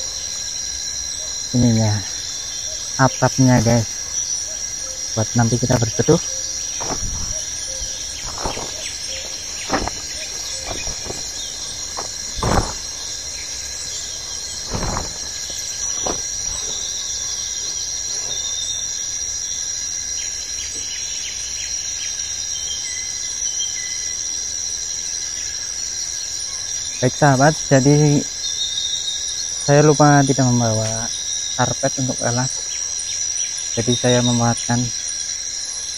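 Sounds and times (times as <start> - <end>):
insects droning: 0.0 - 35.9
plastic tarp rustling: 6.8 - 13.1, 14.6 - 16.9.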